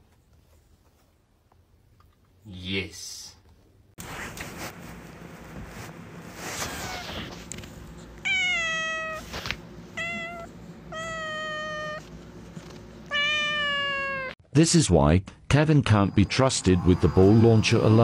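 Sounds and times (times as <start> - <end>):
cat meowing: 8.2 - 9.3, 10.0 - 12.0, 13.1 - 14.4.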